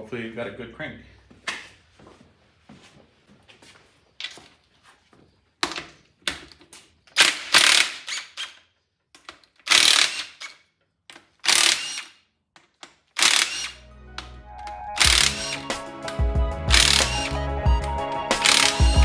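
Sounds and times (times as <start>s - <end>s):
ratchet wrench ratcheting: 7.2s - 8.6s, 9.3s - 12.2s, 12.9s - 13.8s, 15.0s - 15.6s, 16.7s - 17.3s, 18.4s - 19.0s
music: 13.8s - 19.0s.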